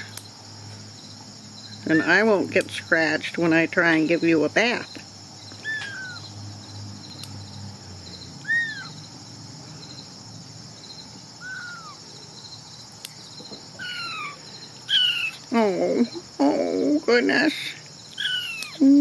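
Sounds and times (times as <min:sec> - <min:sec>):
insects chirping: 0:00.0 - 0:19.0
nail clippers clicking: 0:07.1 - 0:07.4, 0:12.9 - 0:13.2, 0:18.1 - 0:18.8.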